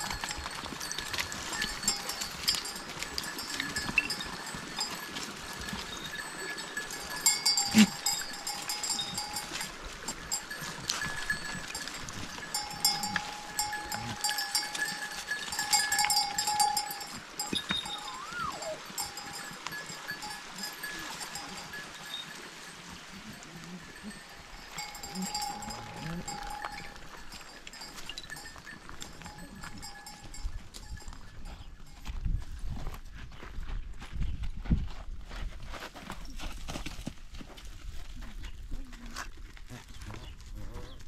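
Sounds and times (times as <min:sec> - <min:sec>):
livestock bells clinking: 0:00.0 - 0:33.0
goats moving over loose stones: 0:00.0 - 0:41.0
whistle-like glide: 0:17.8 - 0:18.8.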